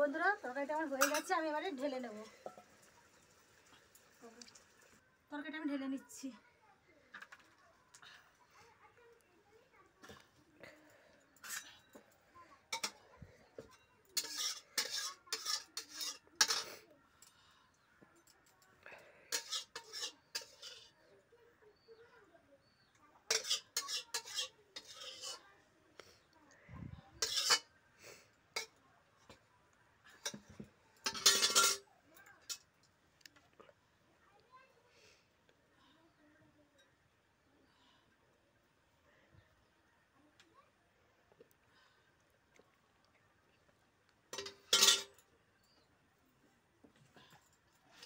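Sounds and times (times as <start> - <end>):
metal spatula scraping a wok: 11.4 - 12.0, 14.2 - 16.8, 19.3 - 21.0, 23.3 - 25.5, 27.2 - 27.7, 31.0 - 31.8, 44.3 - 45.2.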